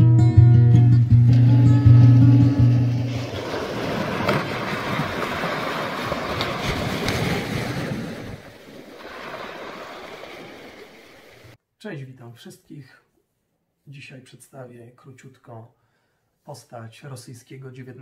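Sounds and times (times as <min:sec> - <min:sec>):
acoustic guitar note: 0:00.0 - 0:03.2
small waves washing on beach: 0:02.9 - 0:11.6.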